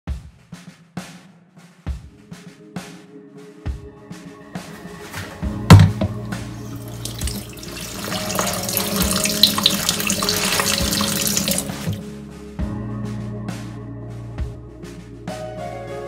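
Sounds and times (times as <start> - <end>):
water splashing: 4.6 - 12.0
tap water running into bowl: 5.7 - 12.0.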